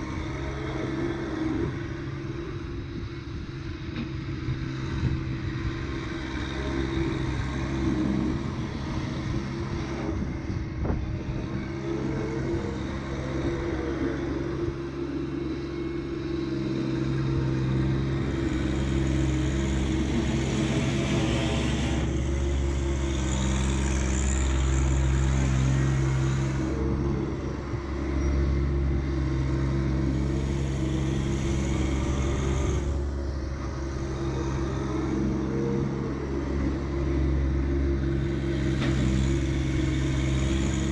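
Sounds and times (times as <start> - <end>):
tractor diesel engine running: 0.0 - 40.9.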